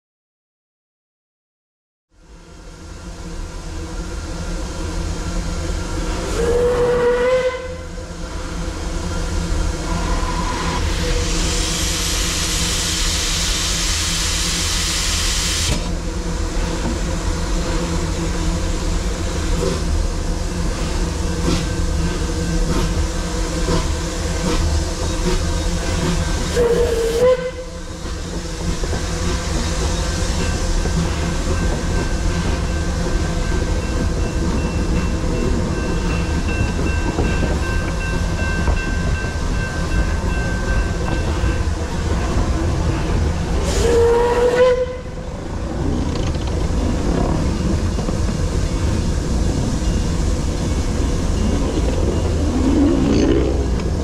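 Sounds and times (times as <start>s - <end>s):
steam whistle blasts: 6.1s - 8.0s, 9.7s - 15.8s, 26.3s - 28.0s, 43.6s - 45.3s
loud hiss of steam: 8.3s - 45.8s, 46.9s - 54.0s
locomotive low rumble: 15.6s - 54.0s.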